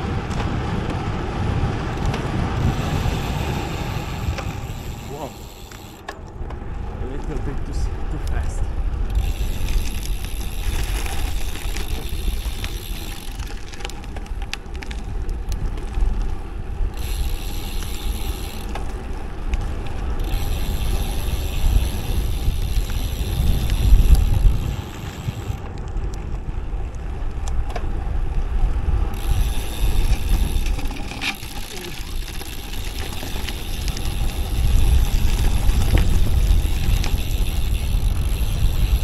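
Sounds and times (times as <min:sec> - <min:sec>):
bike freewheel ticking: 0:00.0 - 0:39.0
wind rumble on microphone: 0:00.0 - 0:39.0.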